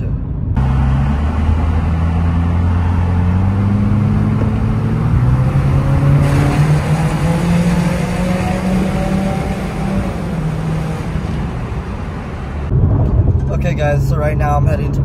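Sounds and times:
road noise: 0.0s - 15.0s
car engine from inside cabin: 0.4s - 12.7s.

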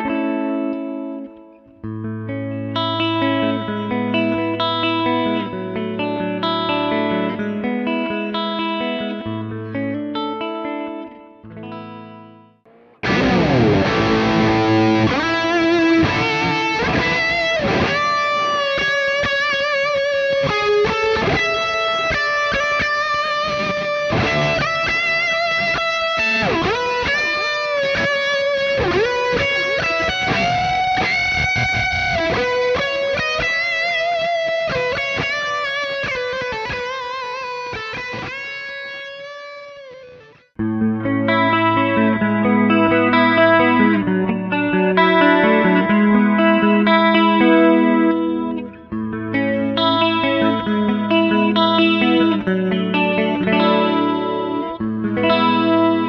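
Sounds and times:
electric guitar lead melody: 0.0s - 56.0s.

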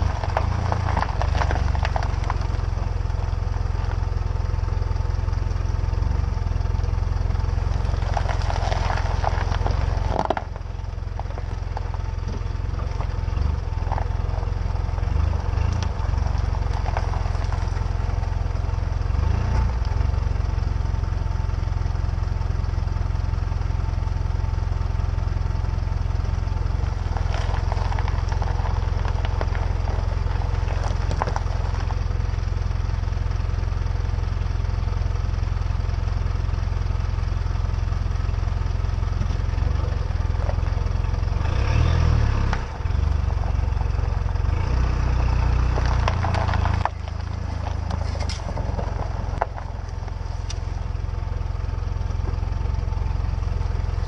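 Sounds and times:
tyres crunching over snow: 0.0s - 54.0s
vehicle engine low rumble: 0.0s - 54.0s.

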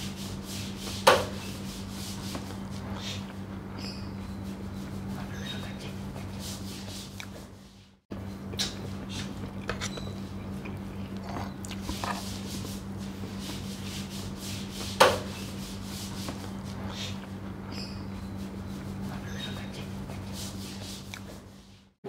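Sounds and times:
steady low hum: 0.0s - 22.0s
cutlery scraping on plate: 9.6s - 10.2s.

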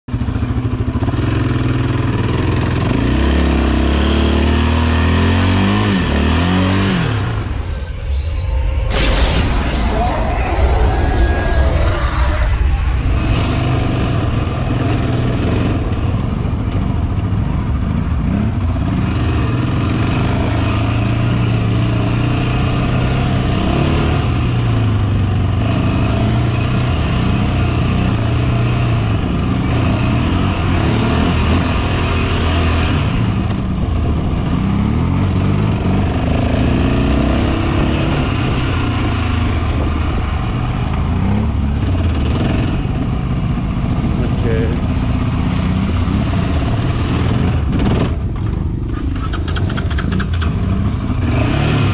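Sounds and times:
quad engine revving: 0.7s - 8.3s, 25.6s - 39.5s, 43.9s - 51.9s.

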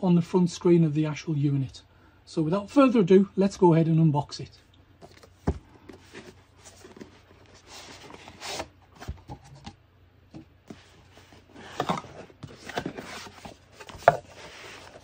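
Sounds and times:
cardboard sleeve scraping: 5.0s - 9.7s, 10.7s - 15.0s
cardboard box rustling and knocking: 5.0s - 15.0s.

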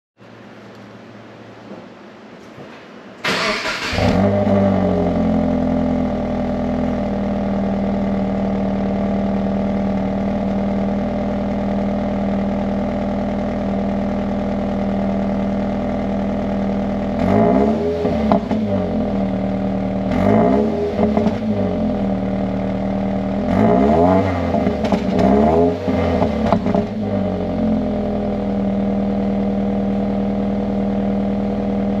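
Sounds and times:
car engine starting and idling: 3.2s - 32.0s
engine revving: 3.3s - 11.8s, 15.3s - 30.5s.

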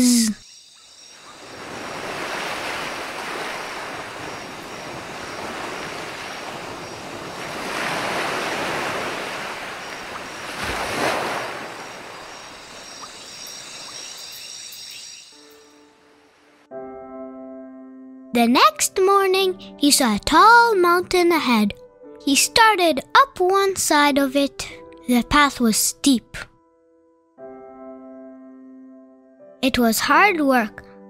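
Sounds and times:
waves washing onto shore: 1.4s - 13.9s.

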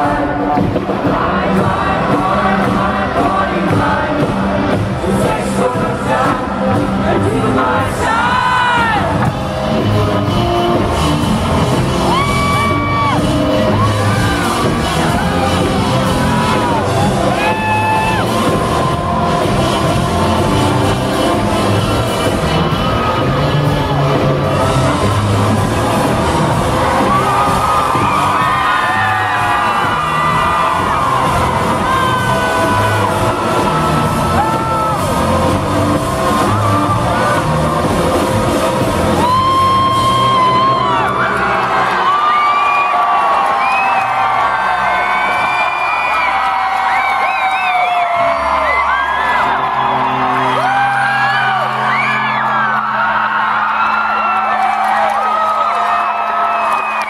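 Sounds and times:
drum kit pounding: 0.0s - 41.0s
live rock band playing: 9.1s - 40.3s
crowd whooping: 10.7s - 57.0s.

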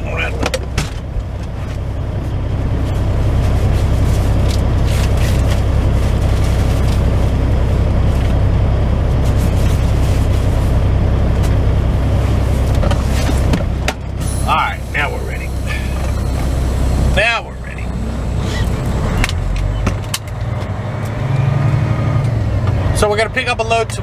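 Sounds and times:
diesel truck engine idling: 0.0s - 24.0s.

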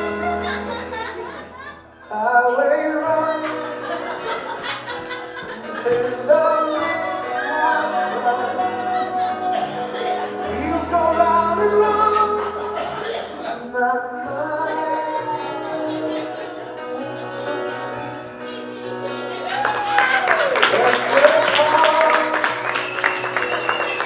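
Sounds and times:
recorded music with singing: 1.9s - 19.6s.

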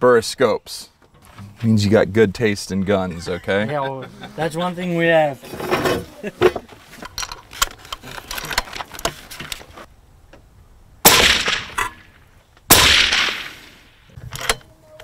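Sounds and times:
suppressed rifle shots: 11.0s - 14.0s.

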